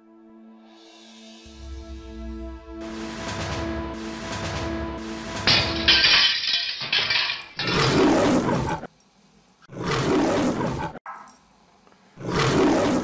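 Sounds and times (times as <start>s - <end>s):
brief crashing noise: 2.8s - 6.0s
lion roaring: 7.6s - 8.9s, 9.7s - 11.0s, 12.2s - 13.0s.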